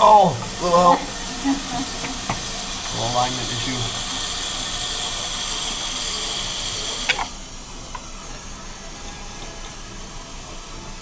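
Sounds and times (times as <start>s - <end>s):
motors whirring: 0.0s - 11.0s.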